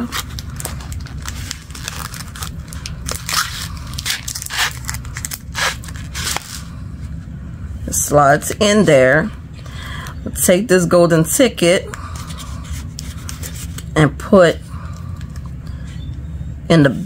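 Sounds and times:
wrapper crinkling: 0.0s - 6.7s.

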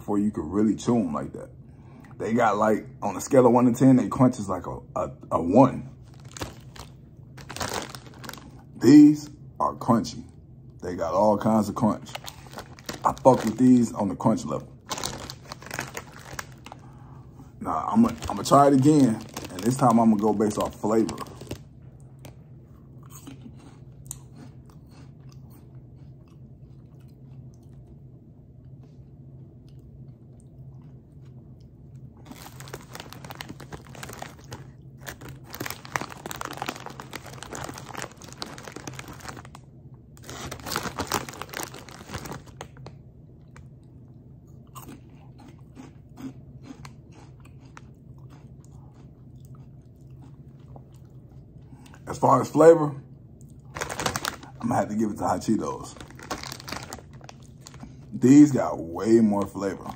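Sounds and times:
person chewing crunchy snacks: 6.0s - 8.7s, 12.1s - 13.8s, 14.8s - 17.0s, 17.9s - 28.0s, 29.6s - 39.6s, 40.2s - 42.8s, 44.5s - 52.0s, 53.5s - 54.7s, 55.8s - 58.2s.

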